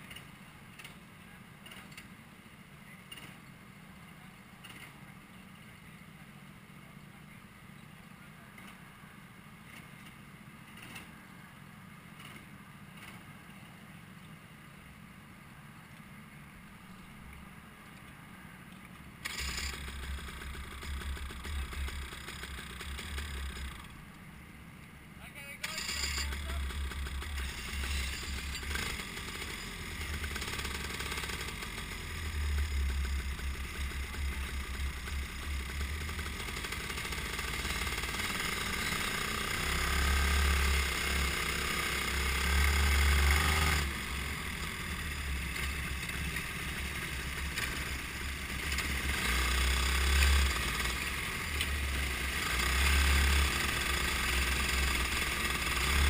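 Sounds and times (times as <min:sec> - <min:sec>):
other kart engines: 0:00.0 - 0:56.0
go-kart engine revving: 0:19.2 - 0:24.2, 0:25.6 - 0:56.0.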